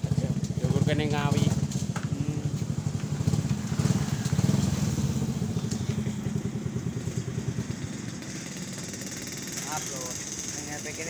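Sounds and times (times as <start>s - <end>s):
small engine puttering: 0.0s - 11.0s.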